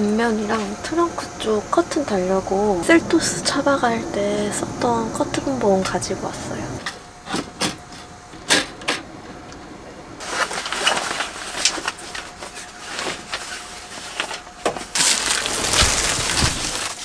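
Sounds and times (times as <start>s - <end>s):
sheet rustling and scraping: 10.2s - 17.0s.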